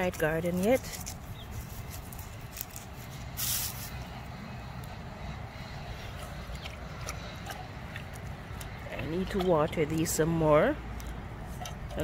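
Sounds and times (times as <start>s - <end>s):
short hissing rustle: 3.1s - 4.0s.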